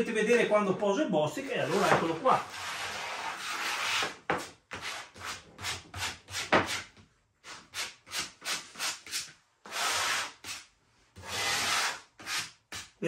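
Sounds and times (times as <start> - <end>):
spatula scraping glue: 1.4 - 13.0.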